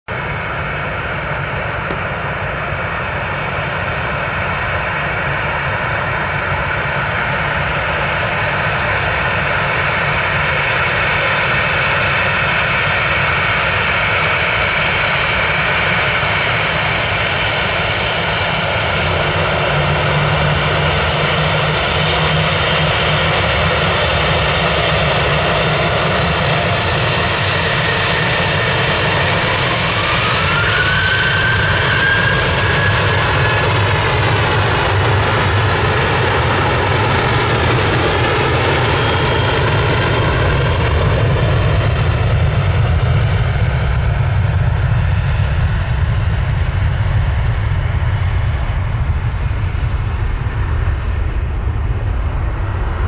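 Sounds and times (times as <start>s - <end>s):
jet engine whine: 0.1s - 53.0s
whine rising in pitch: 28.6s - 37.9s.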